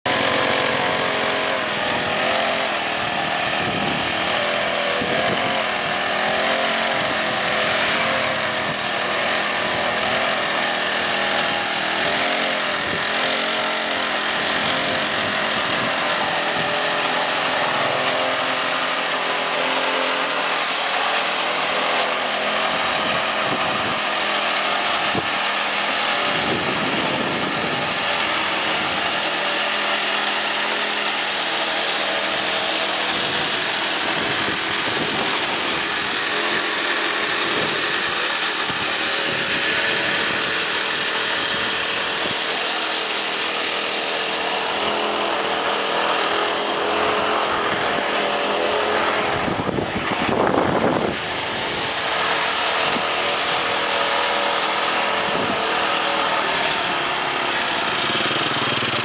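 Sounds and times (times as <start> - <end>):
small petrol engine running: 0.0 - 59.0.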